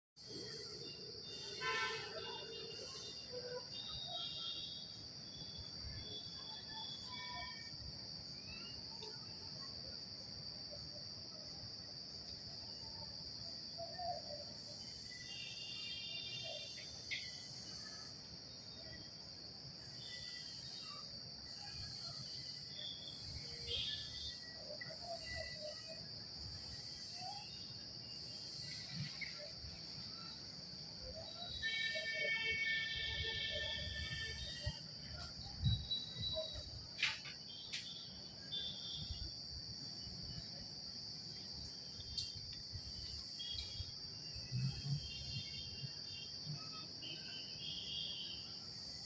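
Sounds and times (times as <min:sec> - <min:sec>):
short insect chirps: 0:00.2 - 0:10.0, 0:13.7 - 0:19.1, 0:19.8 - 0:49.0
insect chorus buzzing: 0:00.2 - 0:49.0.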